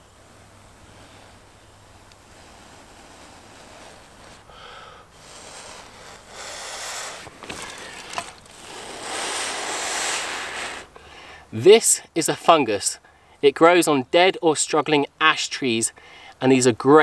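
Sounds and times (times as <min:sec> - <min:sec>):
man blowing breathy puffs: 0:00.3 - 0:11.4.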